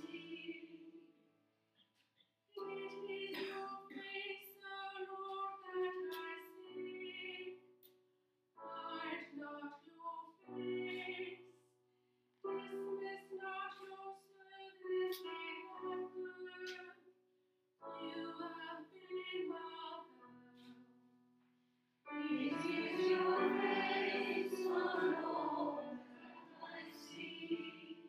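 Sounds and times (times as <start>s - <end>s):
woman singing a psalm: 0.0s - 0.8s, 2.6s - 7.5s, 8.7s - 11.4s, 12.6s - 16.9s, 18.0s - 20.1s, 22.2s - 28.0s.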